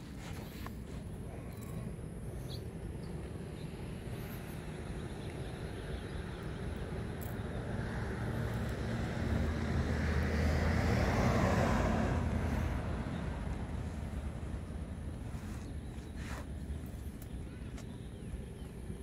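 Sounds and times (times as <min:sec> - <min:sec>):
background traffic hum: 0:00.0 - 0:19.0
vehicle driving past: 0:07.6 - 0:14.8.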